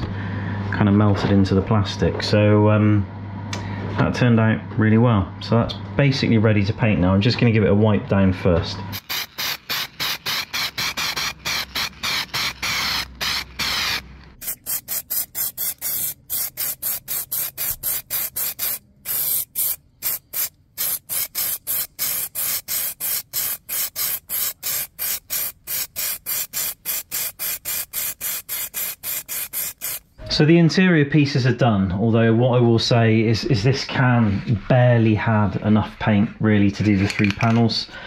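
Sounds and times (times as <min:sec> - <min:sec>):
aerosol spray can hissing: 0:09.0 - 0:30.1.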